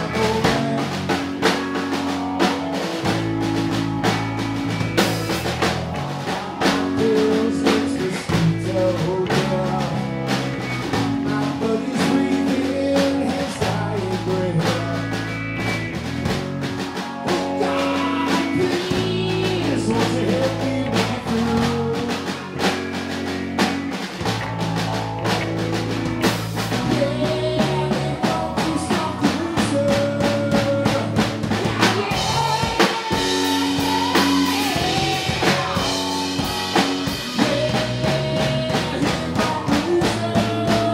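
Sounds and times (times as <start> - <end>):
man singing: 0.0 - 1.6, 6.2 - 15.7, 17.2 - 22.7, 26.6 - 40.9
drum kit: 0.0 - 40.9
electric bass guitar: 0.0 - 40.9
electric guitar: 0.0 - 40.9.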